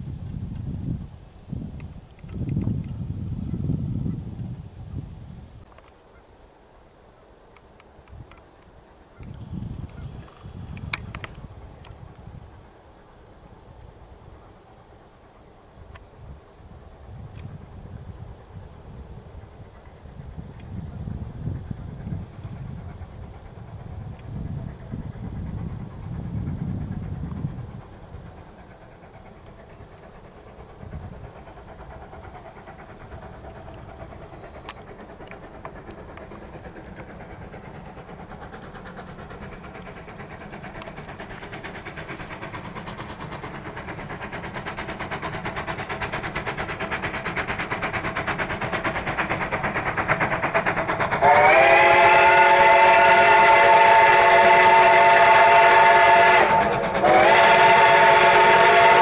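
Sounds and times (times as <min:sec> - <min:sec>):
steam locomotive running: 0:00.0 - 0:59.0
steam whistle blast: 0:51.2 - 0:59.0.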